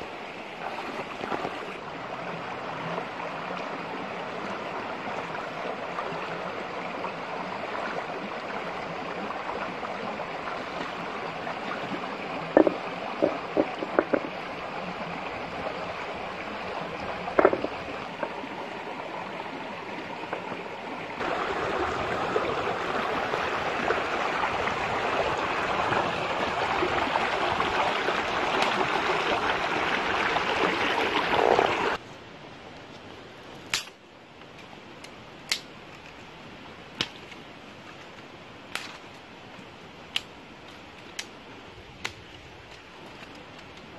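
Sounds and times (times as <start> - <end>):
rocky stream flowing: 0.0 - 32.0
sharp knocks: 12.6 - 14.3.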